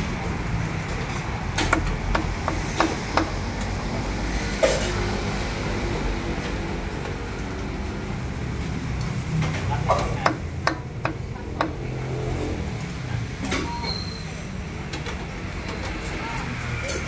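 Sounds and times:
street traffic rumble: 0.0s - 17.0s
cleaver chopping on wooden block: 1.7s - 3.4s, 10.0s - 11.9s.

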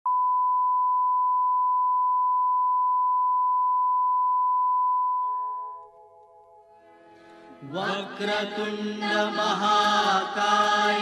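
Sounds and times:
steady test tone beep: 0.1s - 6.0s.

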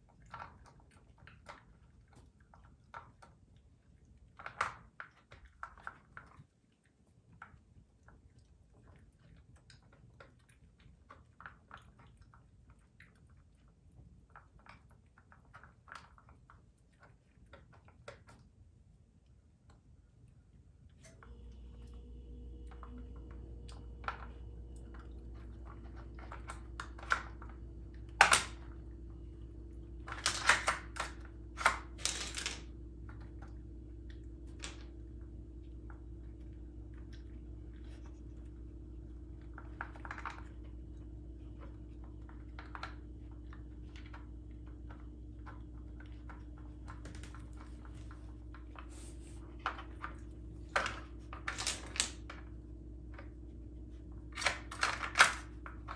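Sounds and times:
plastic puzzle feeder clicking: 30.0s - 32.7s.

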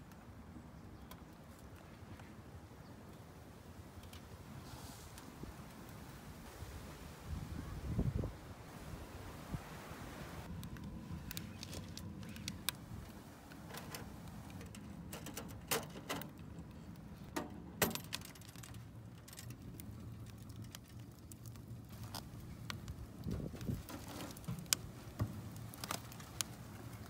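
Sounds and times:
wood fire crackling in stove: 16.2s - 27.0s.

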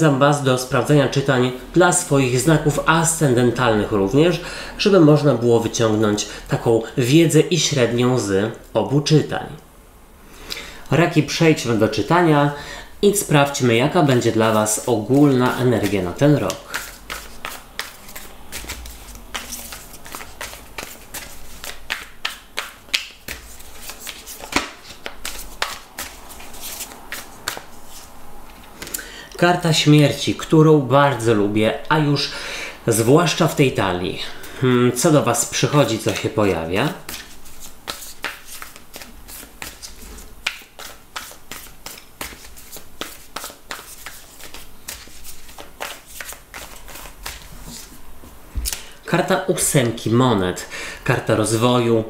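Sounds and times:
cards being shuffled: 14.1s - 29.0s, 35.3s - 48.0s.

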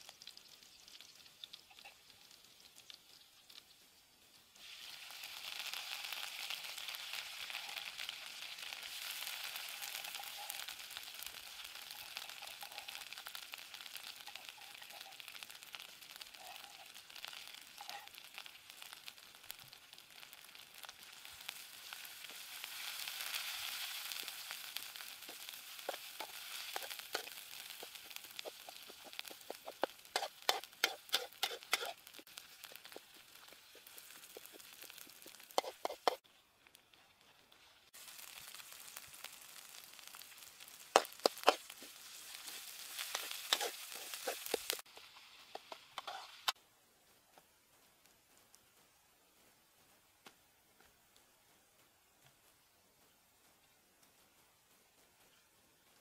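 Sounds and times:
spice paste sizzling in hot oil: 0.0s - 56.0s
wooden spatula scraping wok: 21.9s - 36.3s, 40.4s - 46.6s.

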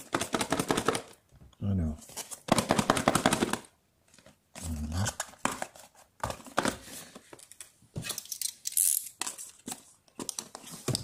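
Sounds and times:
cardboard packaging rustling: 2.0s - 8.3s.

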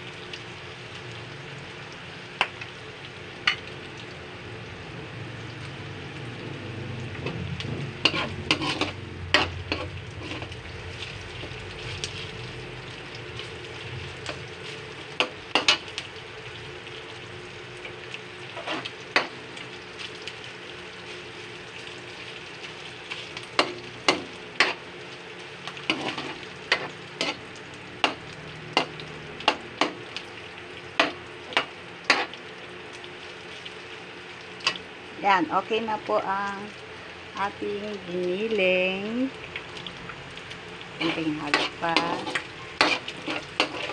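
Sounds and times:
meat sizzling in a wok: 0.0s - 43.9s
metal spoon scraping and knocking pan: 8.0s - 10.5s, 25.9s - 27.4s, 41.0s - 43.9s.

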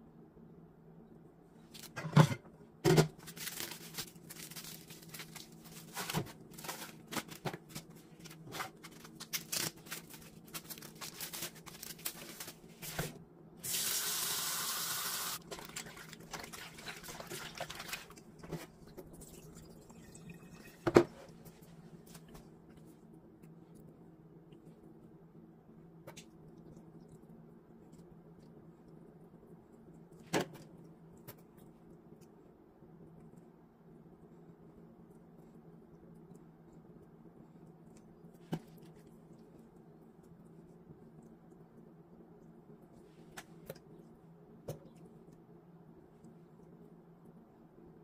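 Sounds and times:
plastic packaging crackling: 3.2s - 12.8s
faucet running: 13.7s - 15.4s.

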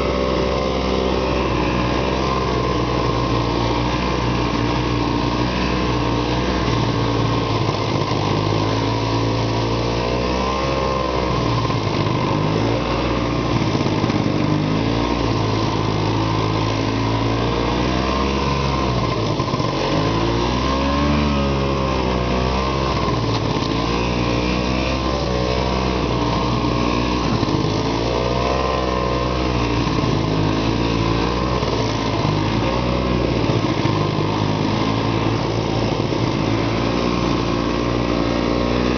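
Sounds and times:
snowmobile engine revving: 0.0s - 38.9s.

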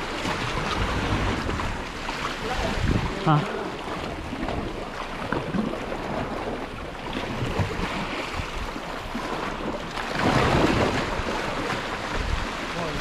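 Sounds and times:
wind on microphone: 2.4s - 8.8s, 10.2s - 13.0s.

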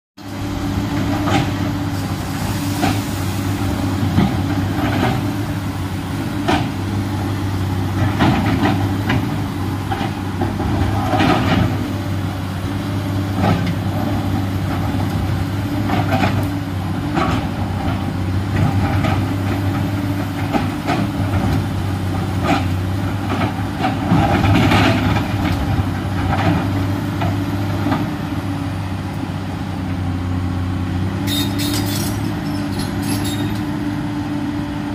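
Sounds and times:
excavator diesel engine running: 0.2s - 34.9s.

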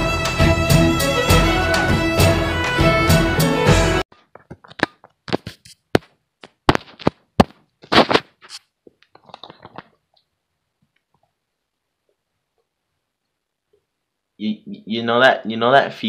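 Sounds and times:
string music: 0.0s - 4.0s
phone being handled: 4.2s - 10.0s.

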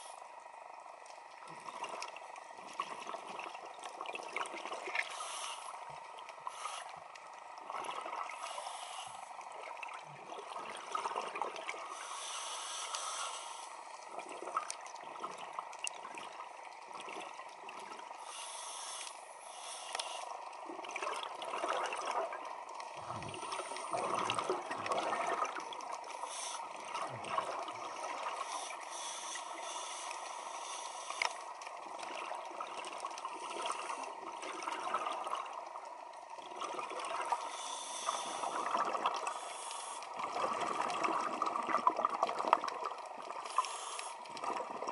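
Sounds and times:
underwater crackling hiss: 0.0s - 3.2s, 4.7s - 9.9s, 10.6s - 15.5s, 17.8s - 20.7s, 21.4s - 35.4s, 36.6s - 44.8s
scuba exhalation bubbles: 23.0s - 25.6s, 26.8s - 28.3s, 40.2s - 43.4s.

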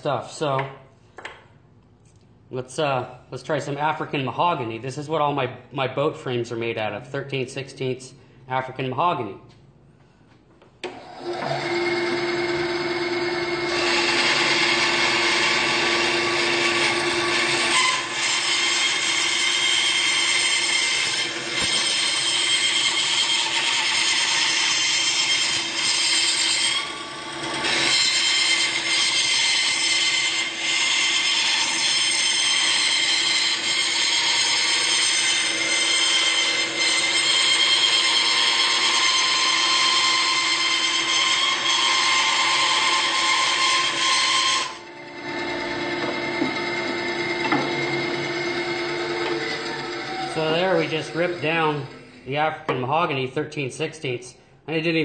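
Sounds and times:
band saw cutting wood: 10.8s - 52.3s.

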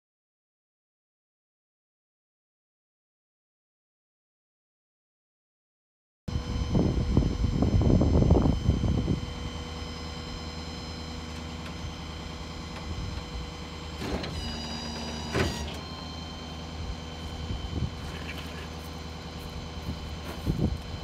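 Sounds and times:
hydraulic winch whining: 8.4s - 21.0s.

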